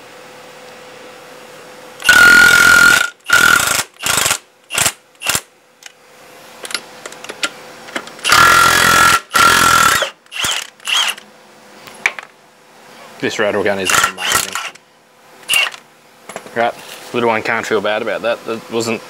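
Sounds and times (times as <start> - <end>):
impact wrench hammering: 2.0 - 5.4, 8.2 - 11.2.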